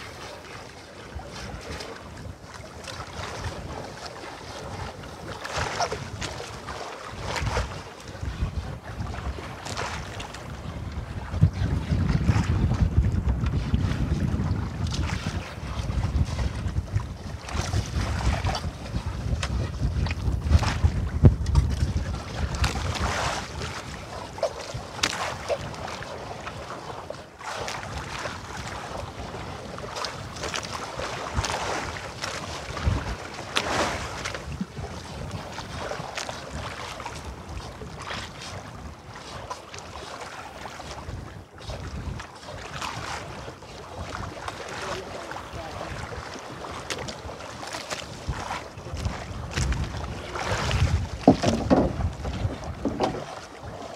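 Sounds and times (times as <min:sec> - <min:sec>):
water splashing against boat: 0:00.0 - 0:53.9
wind buffeting microphone: 0:01.4 - 0:26.6, 0:27.7 - 0:39.3, 0:40.6 - 0:53.8.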